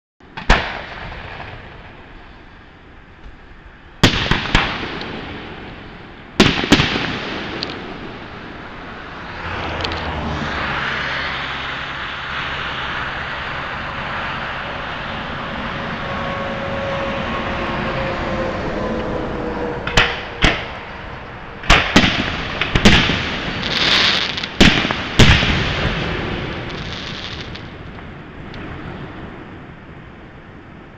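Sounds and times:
steady rushing noise: 0:00.2 - 0:30.9
fireworks bursting: 0:00.3 - 0:09.4, 0:19.9 - 0:30.0.

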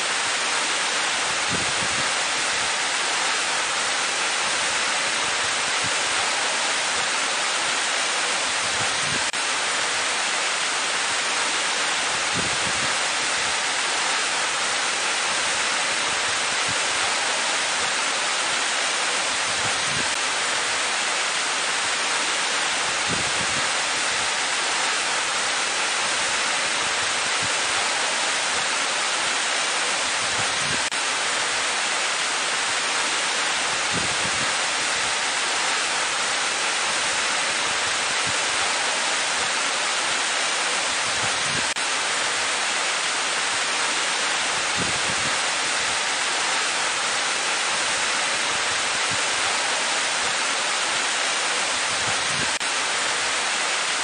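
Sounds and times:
waterfall rushing: 0:00.0 - 0:54.0.

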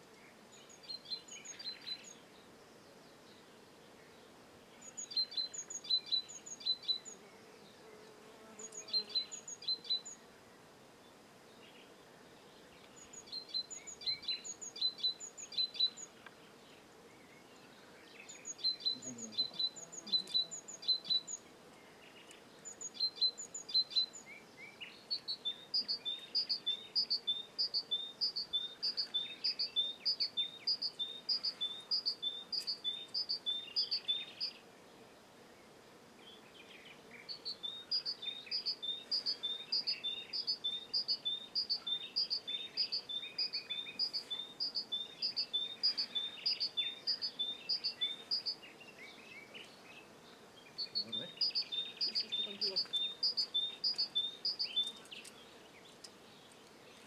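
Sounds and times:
birds chirping: 0:00.2 - 0:57.0.

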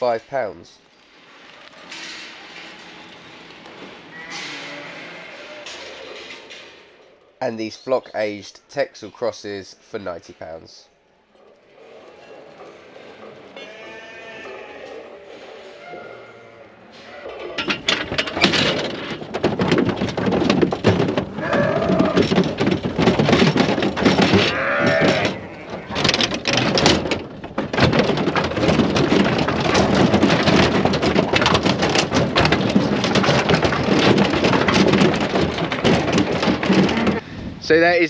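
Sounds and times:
sheep bleating: 0:04.1 - 0:05.7, 0:13.5 - 0:15.0, 0:24.4 - 0:26.0
hooves clattering on metal floor: 0:17.0 - 0:37.2.

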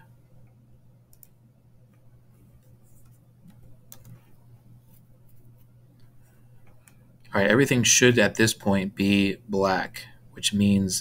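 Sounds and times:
low electrical hum: 0:00.0 - 0:11.0
mouse and keyboard clicks: 0:03.0 - 0:04.3.

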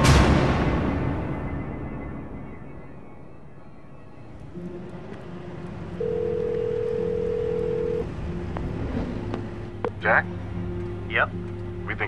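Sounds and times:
steady telephone tone: 0:06.0 - 0:08.1.

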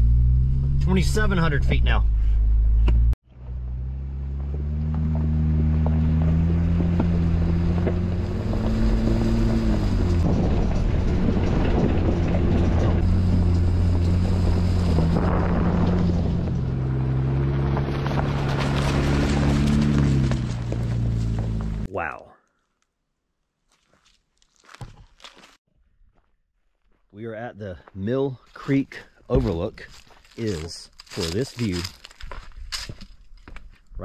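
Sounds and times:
engine pulling uphill: 0:00.0 - 0:21.9
tyres crunching on gravel: 0:04.4 - 0:21.9, 0:23.6 - 0:25.6, 0:26.8 - 0:34.0.

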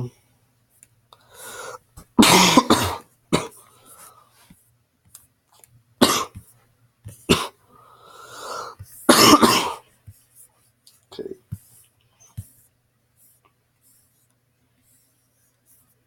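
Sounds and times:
person coughing: 0:02.1 - 0:03.6, 0:06.0 - 0:06.4, 0:07.1 - 0:07.6, 0:09.1 - 0:09.8, 0:11.1 - 0:11.4.

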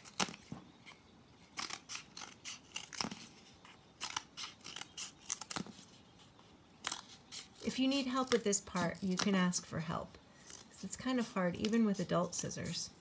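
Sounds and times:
scissors cutting cardboard: 0:01.6 - 0:05.9, 0:06.8 - 0:09.6.

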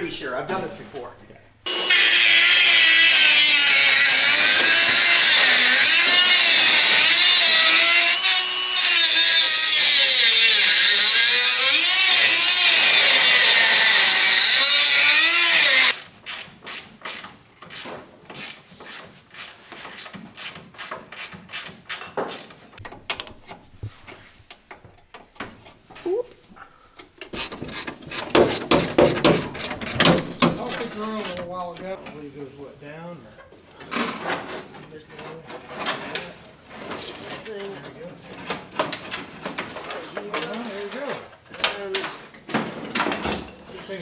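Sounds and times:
cut-off grinder slicing metal: 0:01.7 - 0:16.0.

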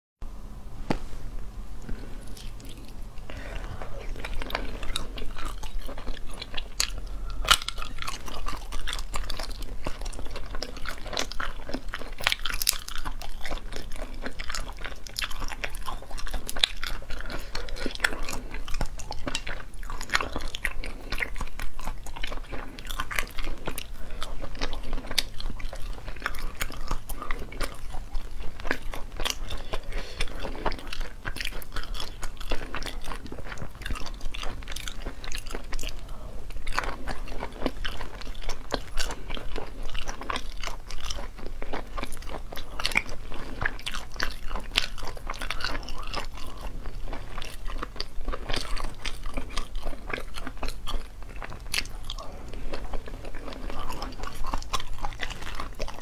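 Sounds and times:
chewing and crunching: 0:01.8 - 0:56.0.

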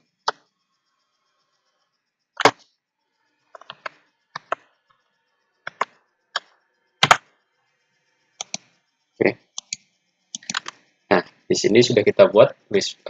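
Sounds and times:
computer keyboard keystrokes: 0:03.6 - 0:04.6, 0:05.7 - 0:05.9, 0:07.0 - 0:07.2, 0:08.4 - 0:08.6, 0:09.6 - 0:09.8, 0:10.4 - 0:10.8.

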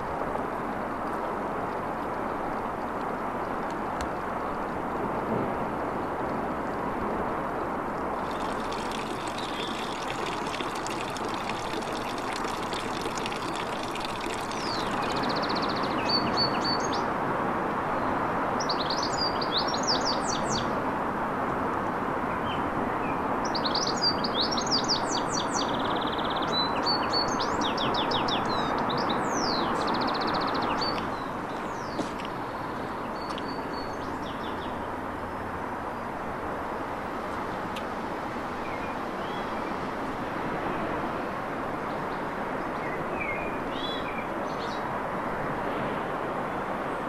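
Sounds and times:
songbirds twittering: 0:08.2 - 0:17.1, 0:18.0 - 0:20.7, 0:22.3 - 0:36.1, 0:38.6 - 0:39.8, 0:41.8 - 0:44.9.

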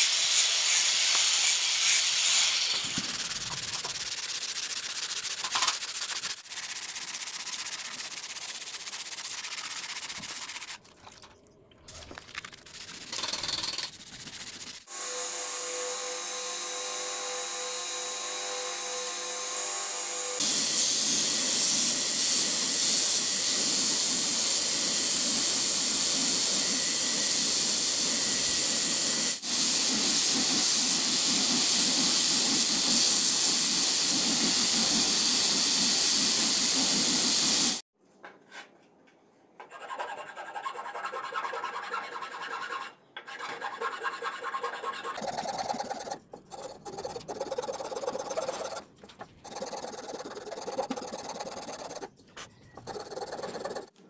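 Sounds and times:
blade hand-sanding strokes: 0:00.0 - 0:10.8, 0:12.6 - 0:18.7, 0:39.7 - 0:52.1, 0:52.8 - 0:53.9.

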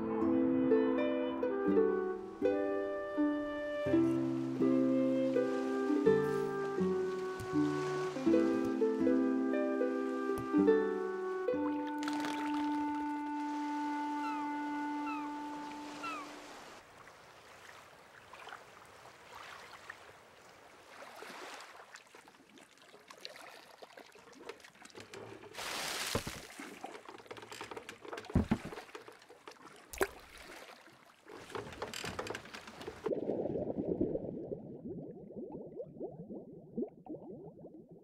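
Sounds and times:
water sloshing: 0:01.9 - 0:37.4
water splash: 0:03.6 - 0:09.2, 0:10.0 - 0:27.2, 0:28.2 - 0:34.8.

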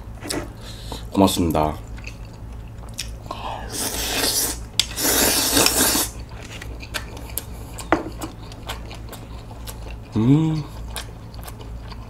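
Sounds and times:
chewing with wet clicks: 0:01.4 - 0:03.3, 0:04.7 - 0:05.0, 0:06.2 - 0:12.0
person slurping noodles: 0:03.7 - 0:06.2.

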